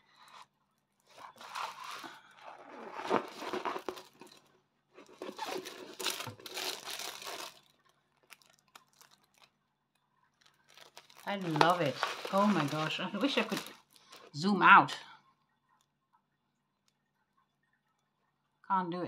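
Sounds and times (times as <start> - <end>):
canvas and plastic film crinkling: 0.1 - 14.5.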